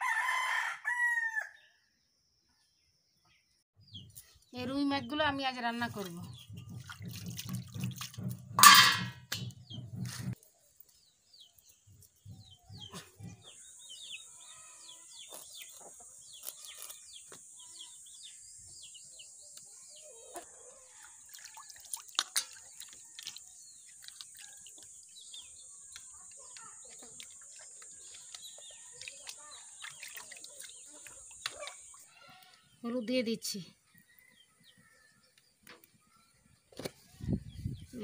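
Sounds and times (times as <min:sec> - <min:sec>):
small birds chirping: 0:02.5 - 0:07.9, 0:09.4 - 0:38.0
steel plate clanking: 0:08.2 - 0:09.8.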